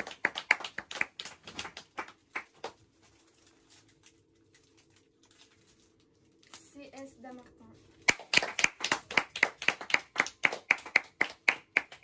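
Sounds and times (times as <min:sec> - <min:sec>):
hand clapping: 0:00.0 - 0:02.8, 0:08.1 - 0:12.0
faint steady hum: 0:00.0 - 0:12.0.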